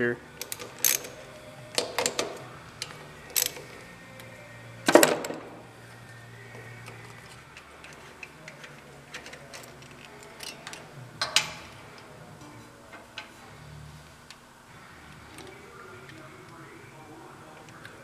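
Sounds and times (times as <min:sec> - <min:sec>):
metal tool clicking on engine: 0:00.4 - 0:01.2.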